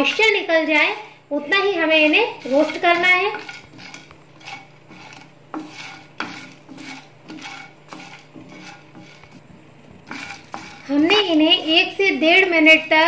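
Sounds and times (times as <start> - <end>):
spatula scraping spices in pan: 0.0 - 12.9
spatula knocking against pan: 2.6 - 9.4.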